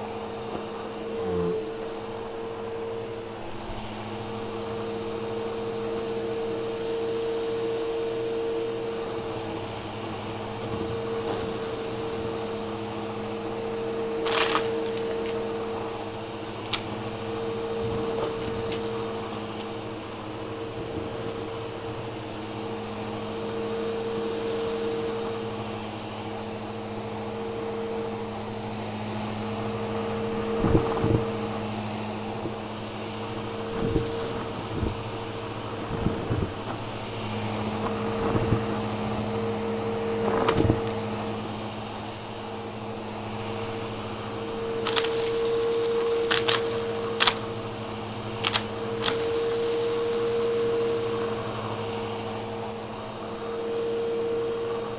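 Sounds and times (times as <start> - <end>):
vacuum cleaner running: 0.0 - 54.9
debris crackling in nozzle: 14.2 - 15.3, 44.8 - 47.6.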